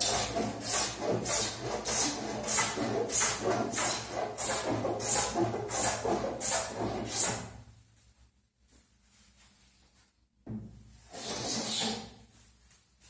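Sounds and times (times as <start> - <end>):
spokeshave rasping on wood: 0.0 - 7.6.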